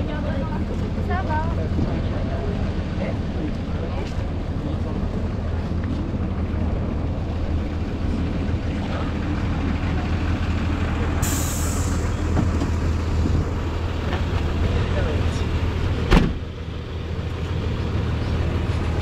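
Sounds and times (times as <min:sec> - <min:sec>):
bus engine idling: 0:00.0 - 0:19.0
air brake hiss: 0:11.2 - 0:12.1.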